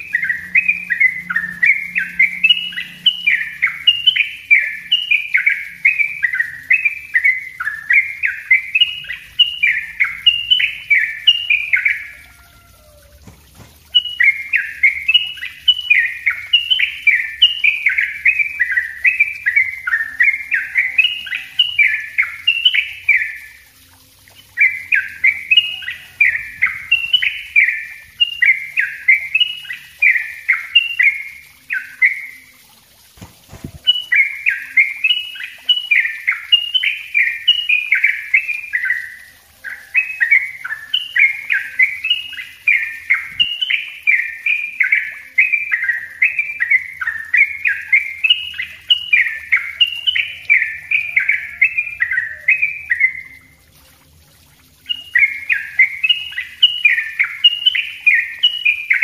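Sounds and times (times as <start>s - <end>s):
bulbul singing rapid falling notes: 0.0s - 59.0s.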